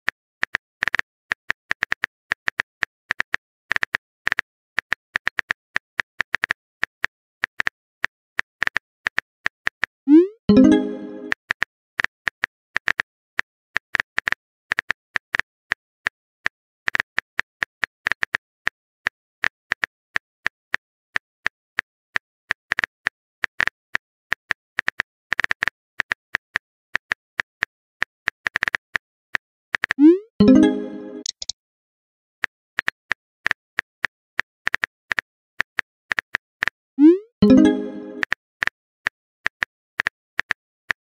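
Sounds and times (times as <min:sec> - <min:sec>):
message sent pop: 0:10.1 - 0:11.4, 0:30.0 - 0:31.5, 0:37.1 - 0:38.3.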